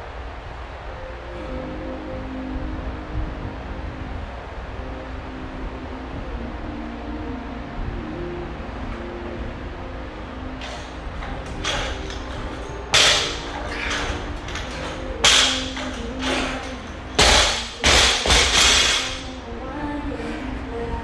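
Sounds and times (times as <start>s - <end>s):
barbell plates clanking and thudding: 10.6s - 19.3s.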